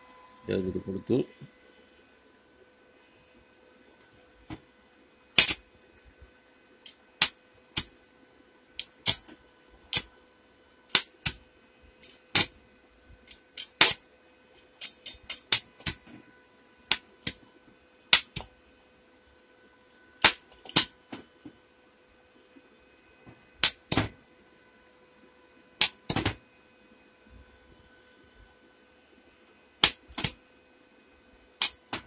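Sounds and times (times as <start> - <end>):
faint steady tone: 0.0 - 8.7
welding arc crackling: 5.4 - 5.7, 6.8 - 8.0, 8.8 - 10.1, 10.9 - 11.4, 12.0 - 12.6, 13.2 - 14.1, 14.8 - 16.2, 16.9 - 17.4, 18.1 - 18.5, 20.2 - 21.1, 23.6 - 24.1, 25.8 - 26.4, 29.8 - 30.4, 31.6 - 32.0.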